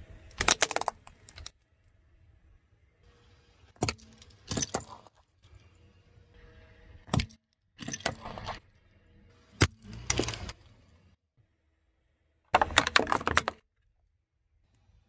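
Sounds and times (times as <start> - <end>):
plastic pieces crackling and scattering: 0.3 - 1.5, 12.6 - 13.6
plastic toys snapping under a tyre: 0.3 - 1.6, 9.6 - 10.6, 12.6 - 13.6.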